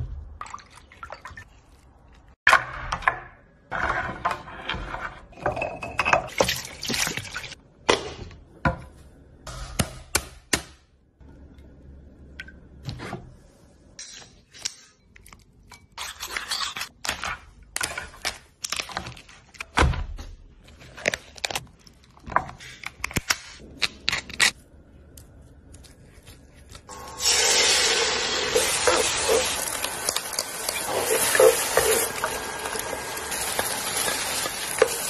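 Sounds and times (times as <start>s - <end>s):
food sizzling in a pan: 26.9s - 35.0s
scraping in a bowl: 30.6s - 32.5s.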